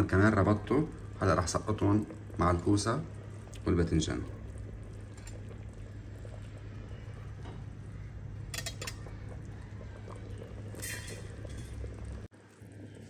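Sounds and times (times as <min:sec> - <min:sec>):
steady low hum: 0:00.0 - 0:13.0
splashes into pot: 0:08.5 - 0:12.1.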